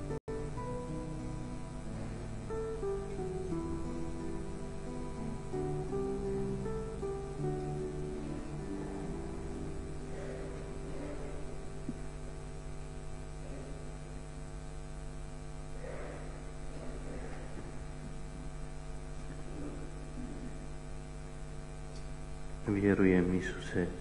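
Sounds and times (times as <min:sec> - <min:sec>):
acoustic guitar notes: 0:00.0 - 0:14.3
electrical mains hum: 0:00.0 - 0:24.0.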